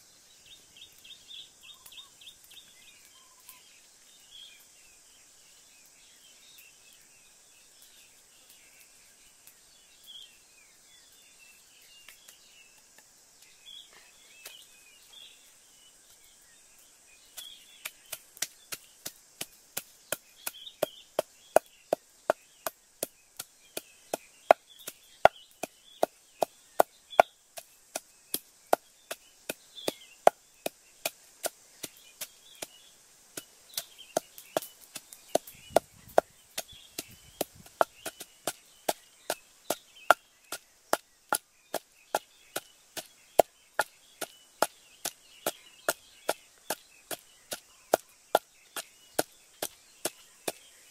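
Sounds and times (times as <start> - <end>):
small birds chirping: 0.0 - 50.9
wooden pestle pounding in mortar: 17.8 - 32.8, 33.4 - 50.6.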